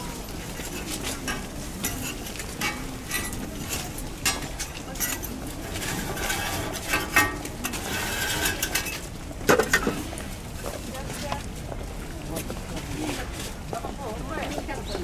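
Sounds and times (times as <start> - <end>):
brush scraping a griddle: 0.0 - 9.1
taps and clinks on a griddle: 0.8 - 10.0.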